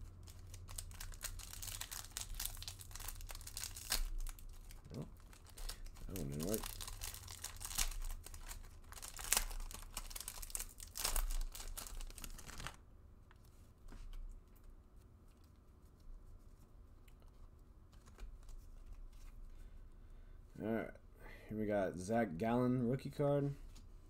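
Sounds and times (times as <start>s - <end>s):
foil wrapper tearing and crinkling: 0.2s - 12.8s.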